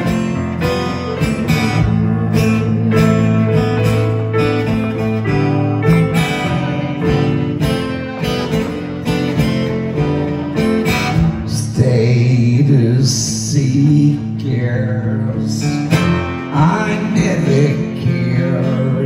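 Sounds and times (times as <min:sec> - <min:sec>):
keyboard chords: 0:00.0 - 0:12.5
acoustic guitar strumming: 0:00.0 - 0:19.0
person singing: 0:11.4 - 0:19.0.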